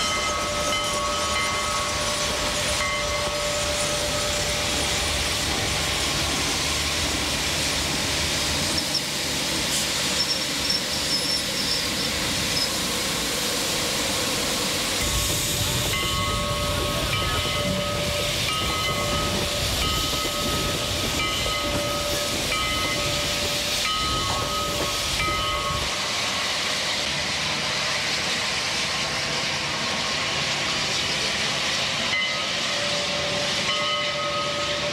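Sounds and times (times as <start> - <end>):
locomotive bell ringing: 0.0 - 5.2, 15.0 - 26.0, 32.1 - 34.9
steam locomotive hissing: 0.0 - 34.9.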